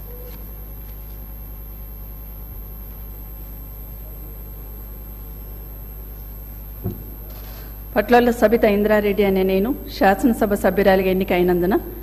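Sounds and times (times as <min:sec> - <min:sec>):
short knock: 0:06.8 - 0:07.2.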